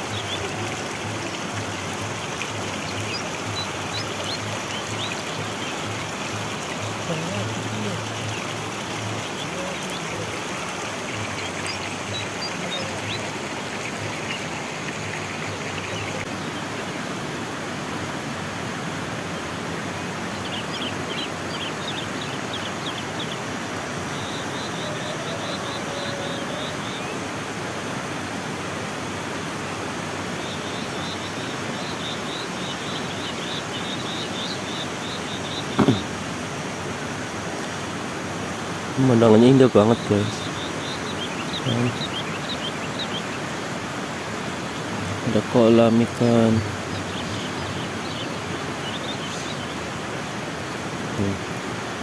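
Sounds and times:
birds chirping: 0:00.0 - 0:17.1, 0:19.2 - 0:27.3, 0:30.2 - 0:38.0, 0:38.8 - 0:51.5
stream flowing: 0:00.0 - 0:52.0
short thump: 0:35.8 - 0:36.3.

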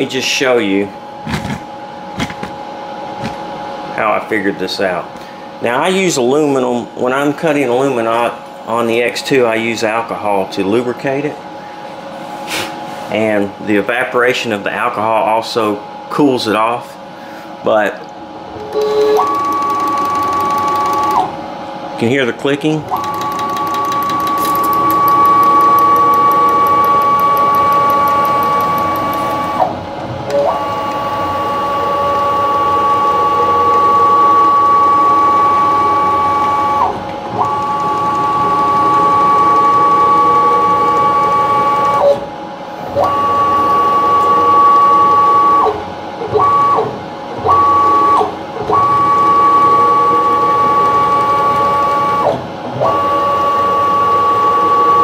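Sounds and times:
stepper motor whining: 0:18.6 - 0:21.4, 0:22.9 - 0:42.1.

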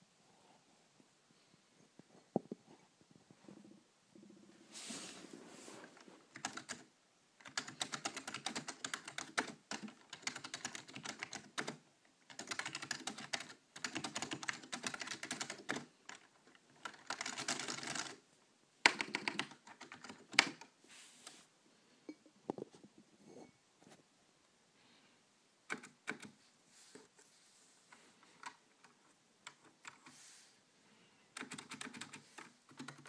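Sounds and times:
typing on mechanical keyboard: 0:06.3 - 0:18.2, 0:18.8 - 0:20.7, 0:25.7 - 0:26.4, 0:28.4 - 0:30.1, 0:31.3 - 0:33.0.

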